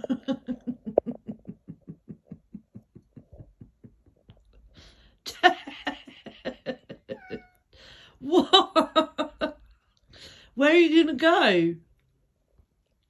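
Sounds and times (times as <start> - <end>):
person laughing: 0.0 - 4.3, 5.3 - 7.6.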